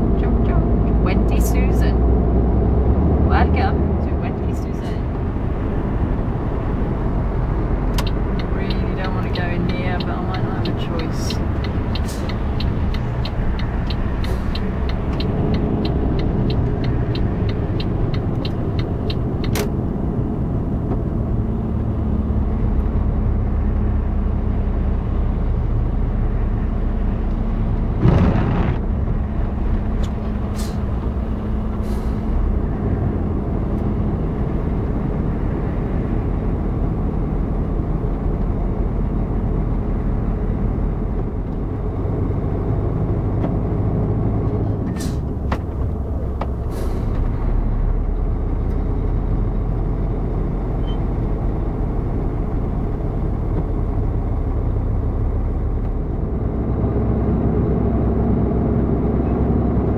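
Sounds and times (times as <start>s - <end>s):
lorry engine and tyre rumble: 0.0s - 59.9s
turn indicator ticking: 6.4s - 21.2s
air brakes hissing: 12.0s - 12.4s, 30.5s - 31.0s, 31.8s - 32.3s, 44.9s - 45.3s, 46.6s - 47.2s.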